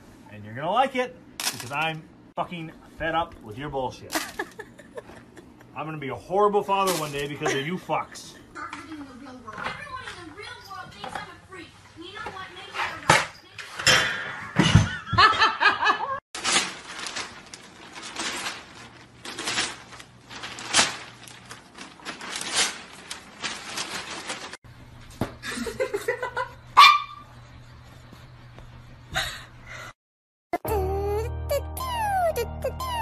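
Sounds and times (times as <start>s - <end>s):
people laughing: 4.1s - 5.8s
small dog yapping: 26.8s - 27.2s.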